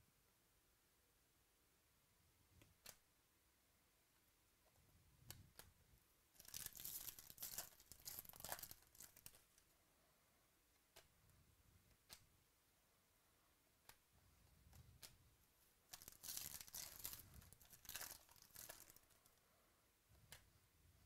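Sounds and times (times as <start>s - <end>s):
foil wrapper tearing and crinkling: 6.4s - 9.4s, 15.9s - 19.2s.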